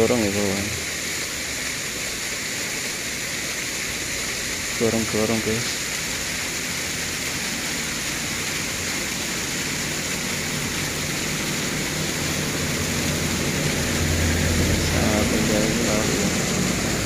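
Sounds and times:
steady rushing hiss: 0:00.0 - 0:17.0
cars driving past: 0:10.5 - 0:17.0.

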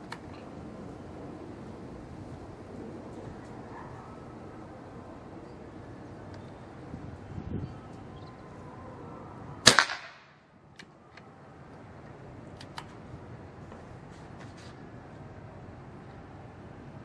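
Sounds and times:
air rifle shot: 0:09.6 - 0:10.4.

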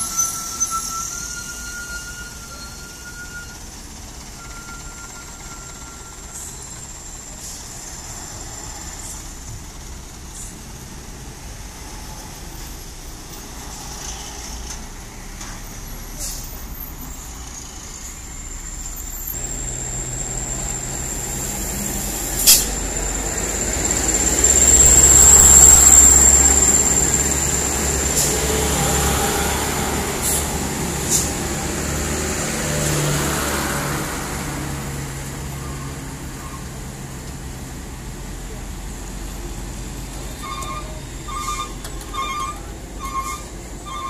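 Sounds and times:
diesel trucks passing: 0:00.0 - 0:44.0.

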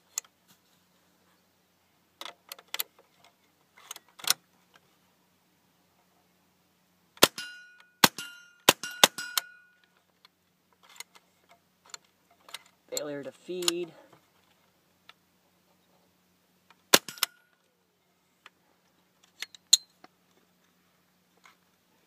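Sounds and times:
rifle shots with metallic ring: 0:07.2 - 0:09.8, 0:16.9 - 0:17.5
rifle handling clicks: 0:09.0 - 0:13.9.

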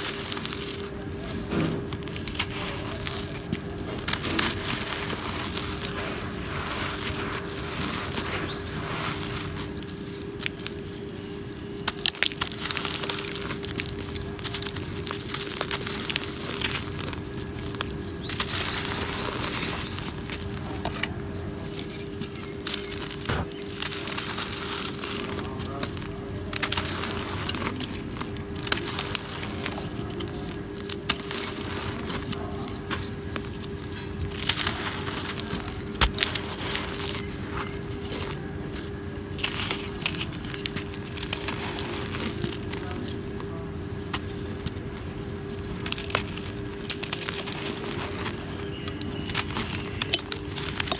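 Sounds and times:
cement lumps crumbling by hand: 0:00.0 - 0:50.9
faint steady hum: 0:00.0 - 0:50.9.

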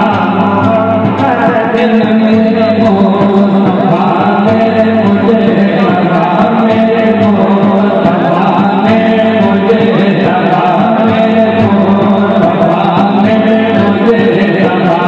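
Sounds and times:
men chanting together: 0:00.0 - 0:15.0
steady drum beat: 0:00.0 - 0:15.0.

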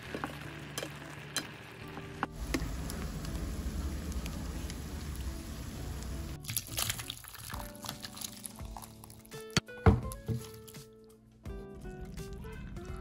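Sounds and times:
oil sizzling in a pan: 0:00.0 - 0:06.4
soup pouring into a bowl: 0:06.4 - 0:09.3.

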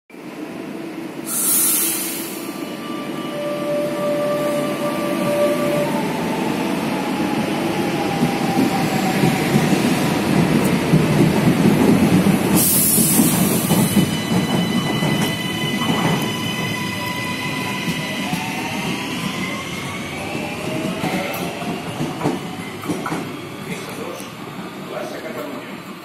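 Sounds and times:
higher train whine: 0:00.1 - 0:26.0
brief hiss: 0:01.3 - 0:02.6.

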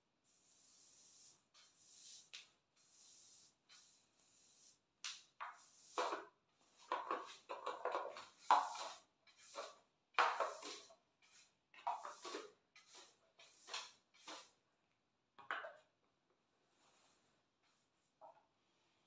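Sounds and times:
broom brushing strokes: 0:00.3 - 0:04.9, 0:05.5 - 0:07.5, 0:08.2 - 0:14.6.

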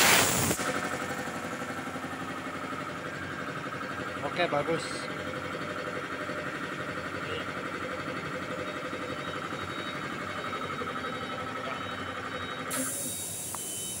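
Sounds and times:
compressed air hissing: 0:00.0 - 0:00.7, 0:12.7 - 0:14.0
air compressor pulsing: 0:00.0 - 0:14.0.

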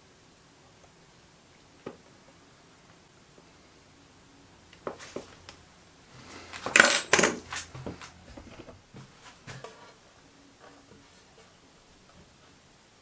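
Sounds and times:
metal tools clicking: 0:06.6 - 0:07.4.

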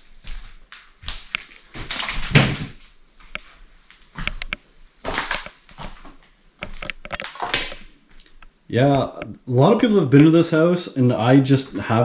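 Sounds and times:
footsteps crunching over debris: 0:00.0 - 0:08.4
sharp knocks and clicks: 0:06.6 - 0:07.8.

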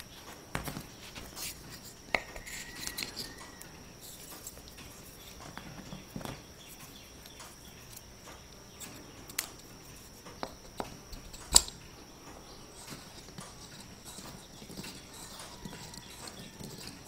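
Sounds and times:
wooden gear clicks and taps: 0:12.8 - 0:17.0.

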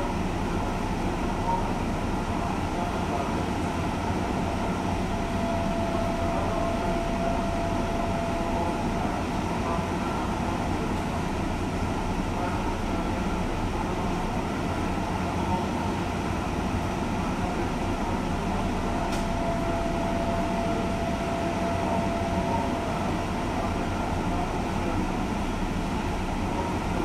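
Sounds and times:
train machinery humming: 0:00.0 - 0:27.0
faint thin tone: 0:05.0 - 0:09.4.

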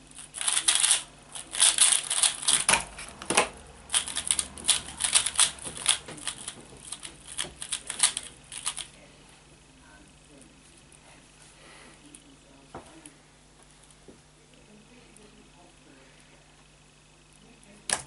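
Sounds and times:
puzzle cube clicking: 0:03.9 - 0:08.9.

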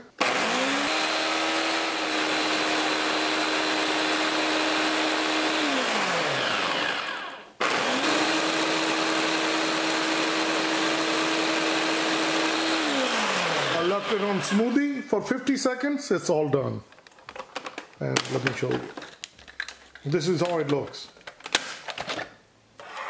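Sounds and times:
blender motor whine: 0:00.2 - 0:14.6.

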